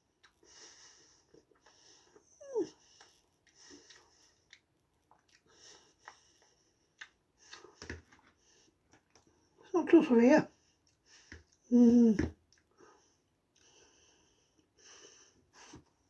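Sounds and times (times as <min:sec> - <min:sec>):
faint breathing: 0:12.7 - 0:16.0.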